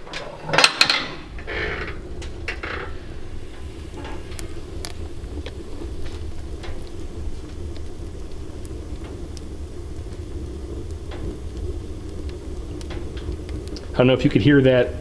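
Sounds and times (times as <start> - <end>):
stove door opening with clatter: 0.0 - 5.0, 12.8 - 14.0
fire draft rushing: 0.0 - 15.0
logs crackling: 0.0 - 15.0.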